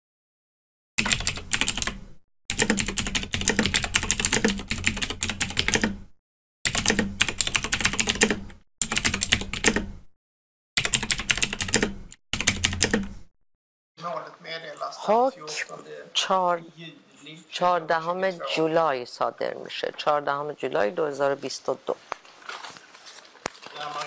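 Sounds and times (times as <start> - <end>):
keyboard typing clicks: 1.0 - 6.0, 6.7 - 9.9, 10.8 - 13.2.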